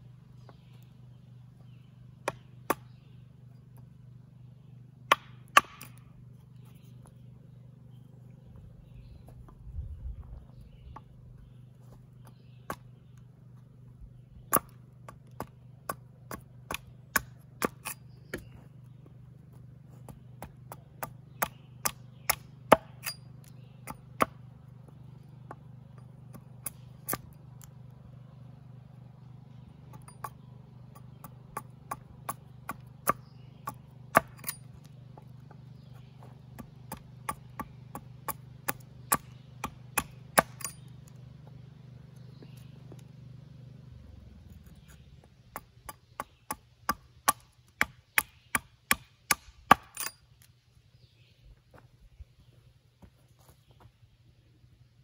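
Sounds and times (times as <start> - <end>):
hatchet chopping wood: 2.2 - 3.0, 5.0 - 6.1, 12.2 - 13.3, 14.4 - 18.7, 19.5 - 27.8, 29.9 - 41.2, 44.8 - 50.2.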